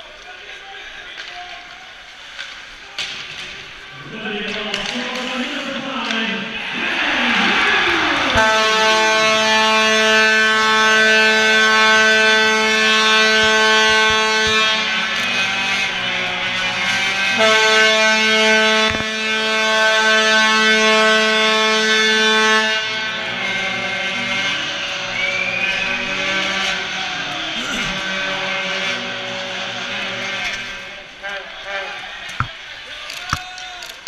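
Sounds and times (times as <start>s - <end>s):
arena horn steady note: 8.2s - 27.0s.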